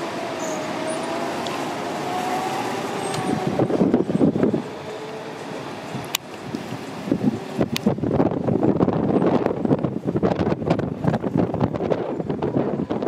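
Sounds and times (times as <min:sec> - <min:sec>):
go-kart engines whining: 0:00.0 - 0:07.9.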